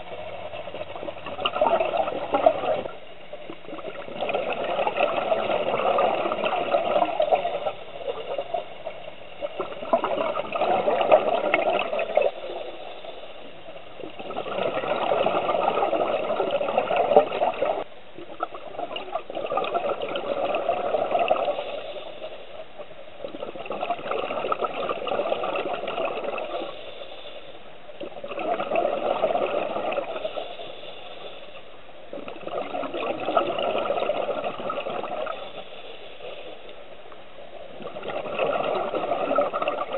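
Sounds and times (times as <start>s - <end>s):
exhaled bubbles bursting: 0.0s - 8.7s, 9.4s - 12.7s, 14.0s - 21.8s, 23.2s - 26.7s, 28.0s - 30.4s, 32.1s - 35.4s, 37.7s - 39.9s
regulator breathing underwater: 26.4s - 27.7s, 29.7s - 31.8s, 35.0s - 36.7s.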